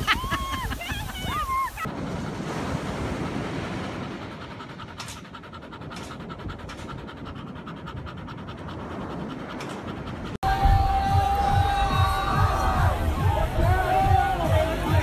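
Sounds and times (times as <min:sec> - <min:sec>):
dog panting: 0:03.3 - 0:10.4.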